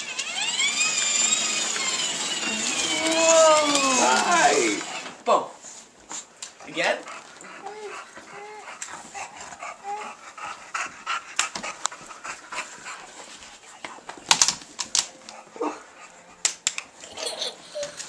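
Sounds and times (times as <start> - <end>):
dog whimpering: 1.5 - 5.0, 7.4 - 10.2
dog panting: 6.1 - 14.1, 15.1 - 16.6.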